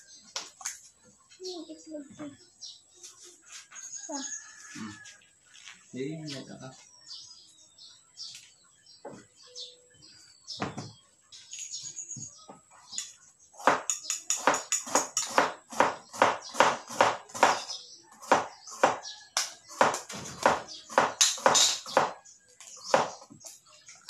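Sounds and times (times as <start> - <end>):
knife chopping on plastic board: 13.6 - 19.1, 19.7 - 22.2.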